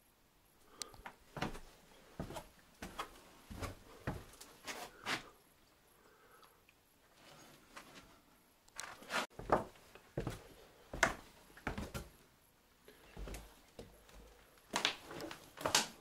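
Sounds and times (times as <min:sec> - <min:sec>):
uneven footsteps: 0:01.0 - 0:05.3, 0:08.8 - 0:12.2, 0:12.9 - 0:16.0.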